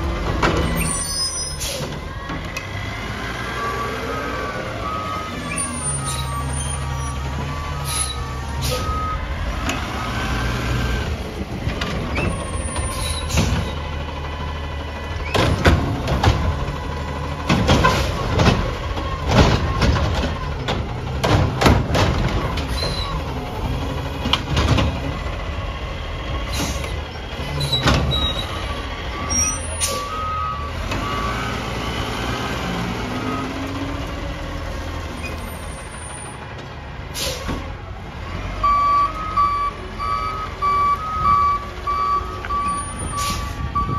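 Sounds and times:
truck diesel engine running: 1.6 - 43.9
backup beeps: 3.6 - 9.3, 28.4 - 31.4, 38.6 - 43.9
bangs and clatter of emptied cart: 17.4 - 23.1, 24.2 - 25.1.

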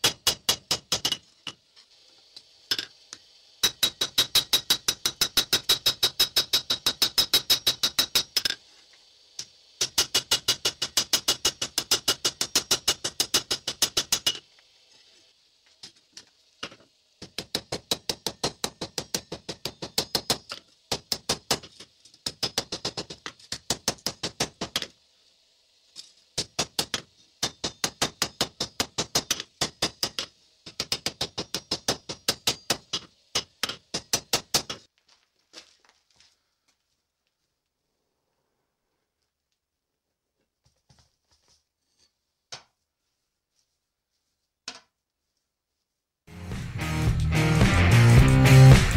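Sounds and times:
hammer striking steel on anvil: 0.0 - 1.6, 3.6 - 8.6, 9.4 - 14.4, 17.2 - 24.9, 26.0 - 34.9.

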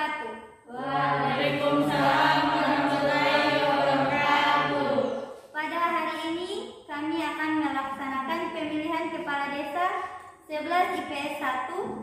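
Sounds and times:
voices chanting together: 0.7 - 5.4.

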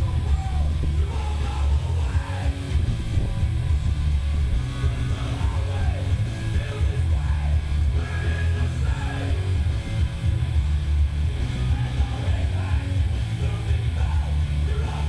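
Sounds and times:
rock music with guitar: 0.0 - 15.0.

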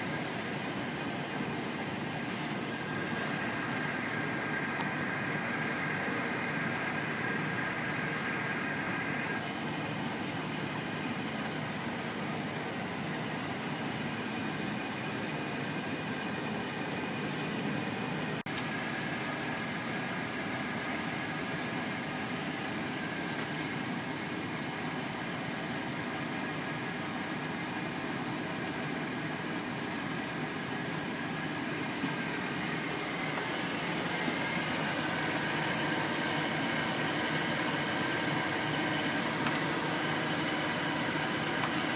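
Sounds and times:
high whine: 0.0 - 25.3
engine idling: 0.0 - 41.9.

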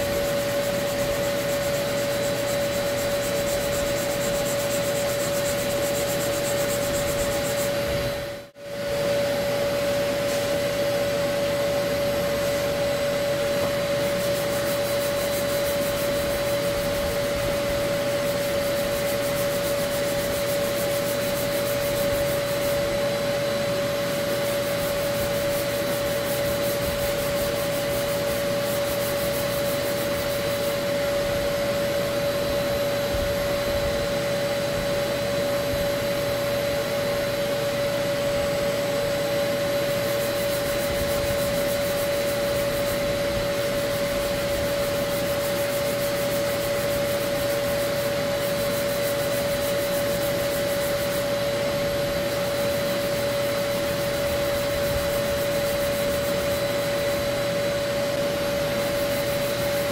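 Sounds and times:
hand-sanding scratch: 0.0 - 8.1, 13.8 - 22.9, 24.2 - 30.8, 39.9 - 51.4
vacuum motor whining drone: 0.0 - 59.9.

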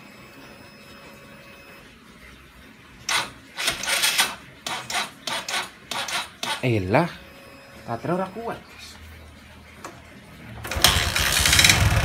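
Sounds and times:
electric starter cranking engine: 3.1 - 6.6, 10.6 - 12.0.

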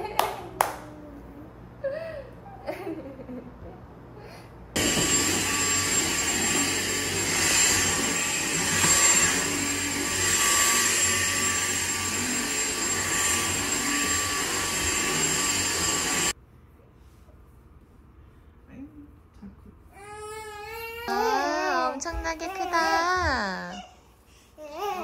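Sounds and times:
blower rushing air with whine: 4.8 - 16.4.

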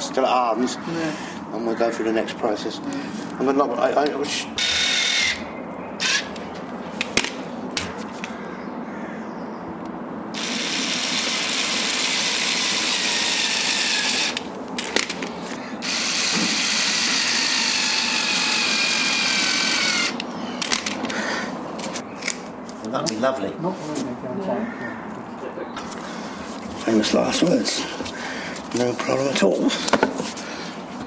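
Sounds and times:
electric power tool whirring: 4.6 - 6.4, 10.4 - 14.5, 15.8 - 20.8.

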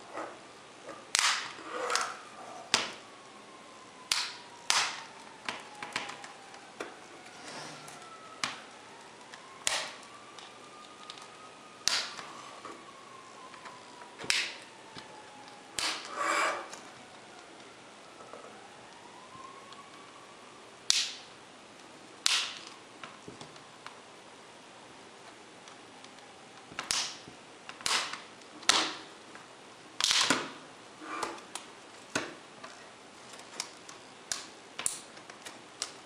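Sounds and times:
plastic clips snapping: 10.8 - 12.2.

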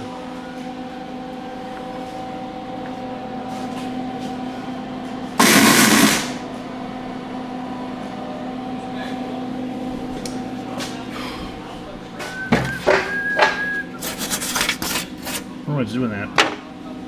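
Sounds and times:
steady hum: 0.0 - 17.0
mig welding burst: 5.4 - 6.4.

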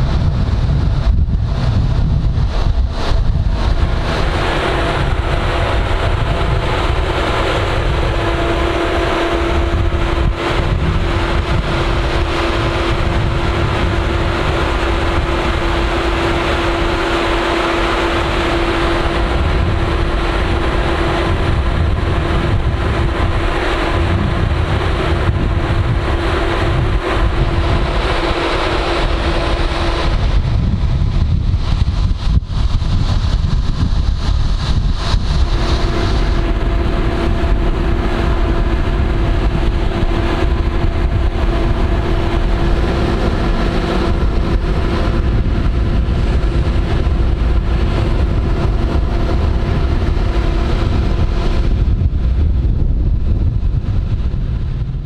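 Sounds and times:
train machinery hum: 0.0 - 55.0
wind buffeting microphone: 0.0 - 55.0.

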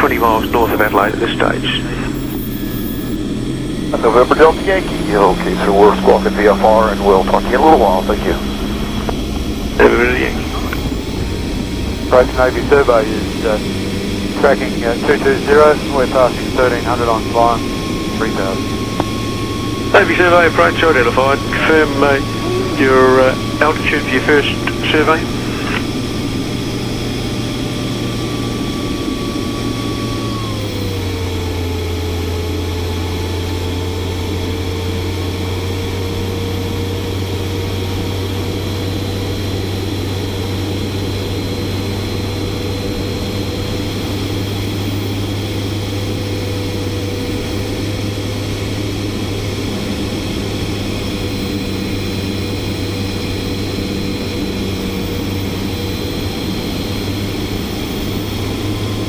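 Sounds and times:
model turboprop engine running: 0.0 - 59.0.

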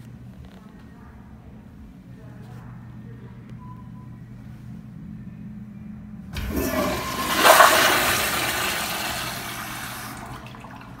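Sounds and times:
toilet flushing: 6.4 - 11.0.

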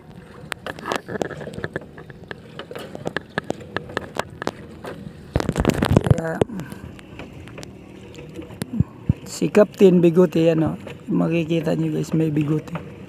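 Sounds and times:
wet rope being hauled: 0.5 - 9.4.

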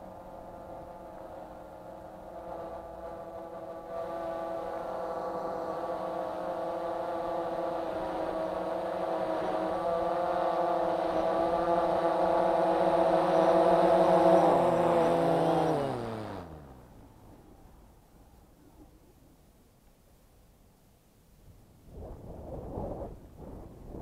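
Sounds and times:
drone propellers humming: 0.0 - 17.6
drone motors spinning down: 1.5 - 17.2.

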